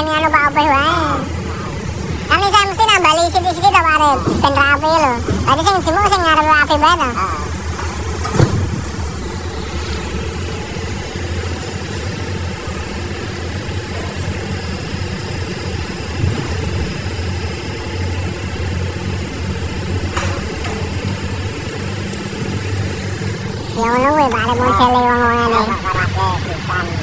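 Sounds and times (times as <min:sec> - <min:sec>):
diesel machinery engine running: 0:00.0 - 0:27.0.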